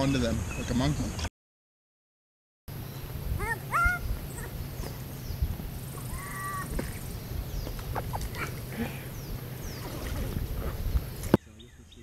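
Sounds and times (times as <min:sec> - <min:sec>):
steady low rumble: 0:02.7 - 0:11.3
small birds chirping faintly: 0:02.7 - 0:12.0.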